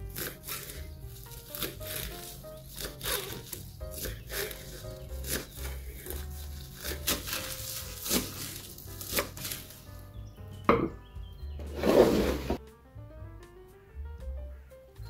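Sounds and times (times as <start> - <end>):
knife chopping on wooden board: 0.1 - 9.7.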